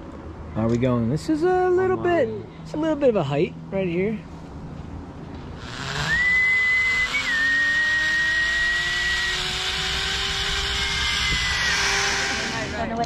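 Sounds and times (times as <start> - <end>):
zip-line pulleys whirring on cable: 5.6 - 13.0.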